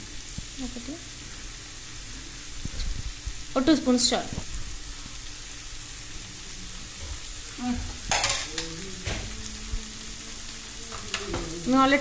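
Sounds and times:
food sizzling in frying pan: 0.0 - 12.0.

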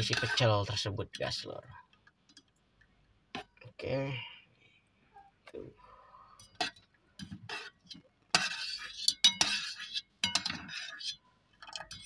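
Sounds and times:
metal ladle clinking in pot: 6.4 - 12.0.

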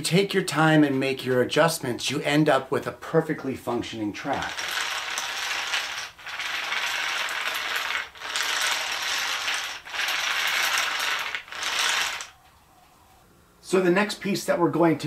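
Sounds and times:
wooden toy tracks clattering: 4.3 - 12.3.

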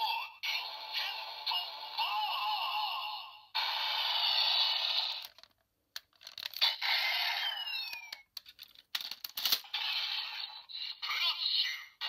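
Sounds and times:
toy blaster electronic sound effects: 3.6 - 5.4, 6.6 - 8.2, 9.6 - 12.0
plastic toy parts clicking: 5.2 - 6.8, 7.8 - 9.7.

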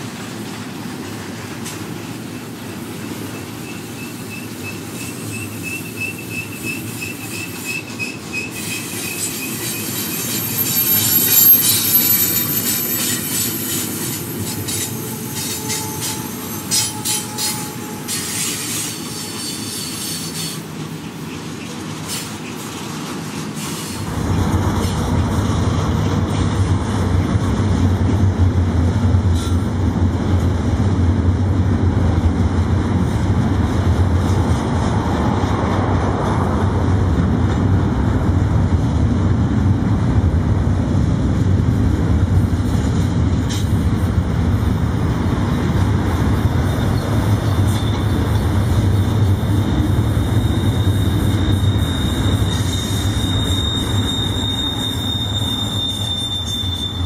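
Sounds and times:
freight train rumbling past: 0.0 - 57.0
high wheel squeal: 3.2 - 22.7, 46.8 - 57.0.

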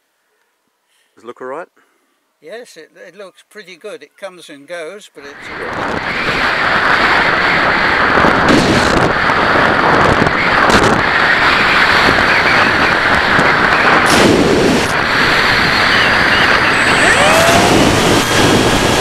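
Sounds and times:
wind buffeting microphone: 5.4 - 19.0.

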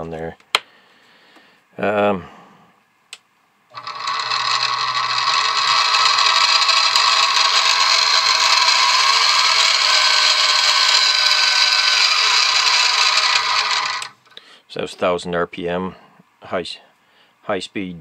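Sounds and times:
milling machine whining and rattling: 3.7 - 14.2.

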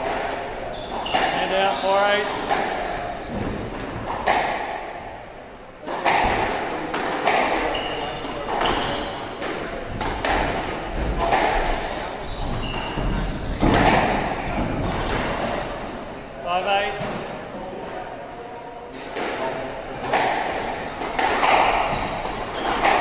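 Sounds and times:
ball hitting court walls: 0.0 - 4.9, 5.8 - 16.0, 19.0 - 23.0
racket hitting squash ball: 0.0 - 16.1, 16.9 - 17.4, 19.0 - 23.0
shoes squeaking on wooden floor: 0.7 - 2.5, 7.6 - 9.4, 10.6 - 16.1, 20.5 - 23.0.

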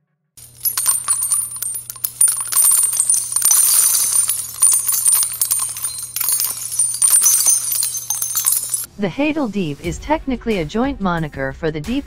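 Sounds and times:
metallic clicks and jingling: 0.4 - 8.9.

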